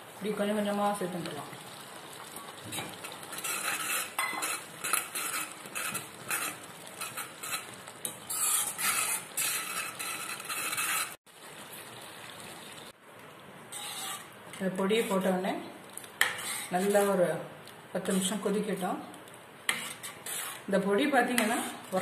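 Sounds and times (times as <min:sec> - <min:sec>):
spoon stirring and scraping in a pot: 0:02.2 - 0:11.2, 0:13.7 - 0:15.3, 0:16.0 - 0:17.3, 0:19.6 - 0:22.0.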